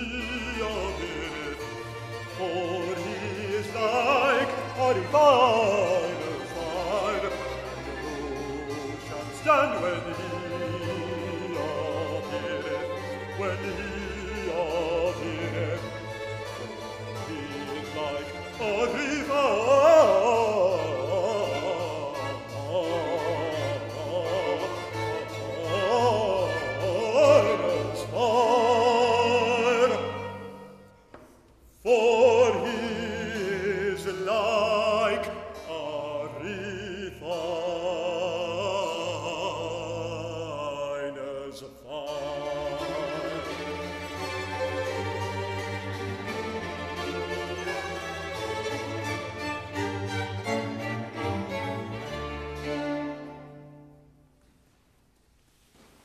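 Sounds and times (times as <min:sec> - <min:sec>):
baritone singing with vibrato: 0:00.0 - 0:30.7, 0:31.6 - 0:53.6
baroque strings and harpsichord: 0:00.0 - 0:31.2, 0:31.8 - 0:54.0.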